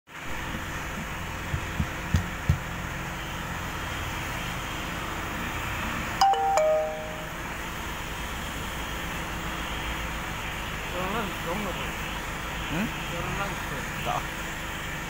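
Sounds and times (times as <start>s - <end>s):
short falling chime: 6.2s - 7.4s
heat gun hissing: 7.8s - 15.0s.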